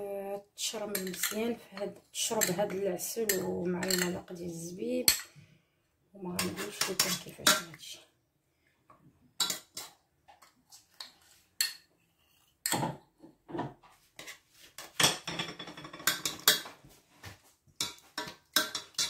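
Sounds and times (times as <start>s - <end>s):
metal utensils clinking: 0.9s - 1.5s, 2.4s - 4.2s, 17.8s - 19.0s.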